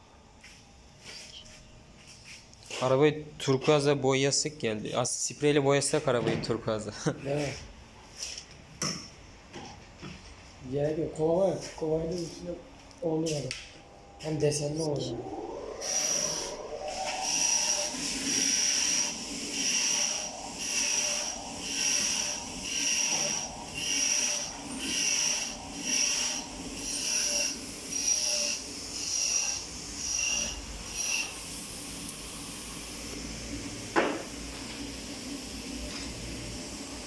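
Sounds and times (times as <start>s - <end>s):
rhythmic rubbing strokes: 14.1s - 31.6s.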